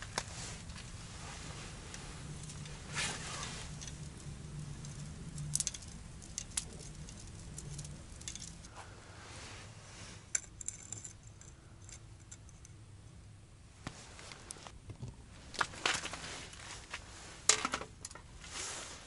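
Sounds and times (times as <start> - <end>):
fishing rod tackle clicking and rattling: 3.7 - 8.7.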